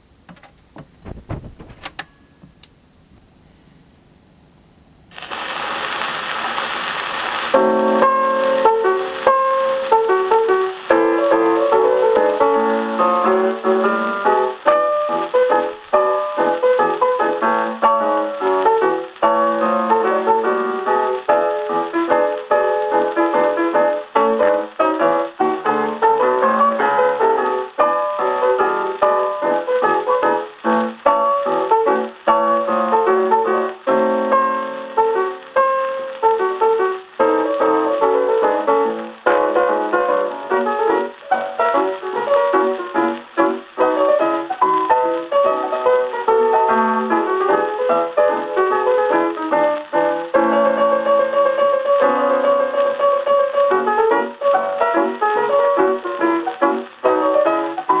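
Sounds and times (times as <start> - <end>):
record surface hiss: 0.0 - 58.0
solo jazz piano from record: 0.0 - 58.0
phonograph handling clicks: 0.2 - 2.8.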